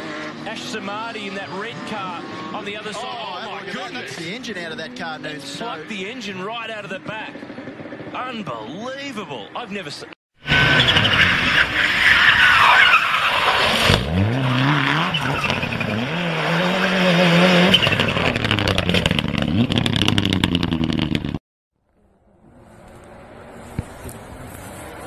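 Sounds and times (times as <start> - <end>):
car engine revving high: 0.0 - 6.1, 10.5 - 21.4
tyres squealing: 10.5 - 19.0
faint wind noise: 22.0 - 25.0.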